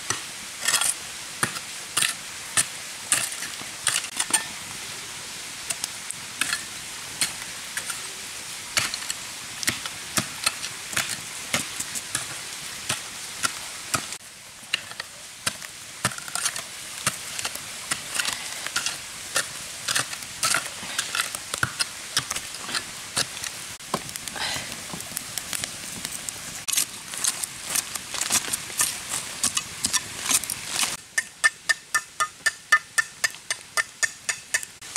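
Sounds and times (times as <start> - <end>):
knife scraping bamboo: 26.6 - 34.8.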